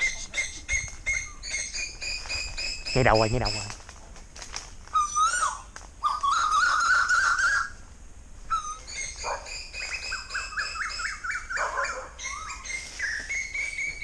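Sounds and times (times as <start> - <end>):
birds chirping: 0.0 - 3.8, 8.5 - 14.0.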